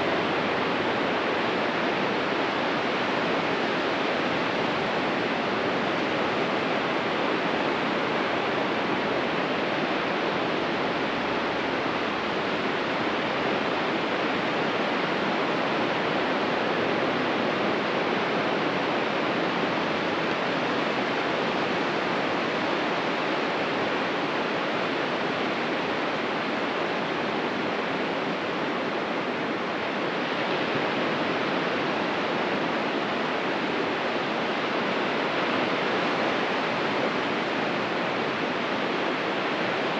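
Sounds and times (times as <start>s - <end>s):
ocean surf washing on beach: 0.0s - 39.9s.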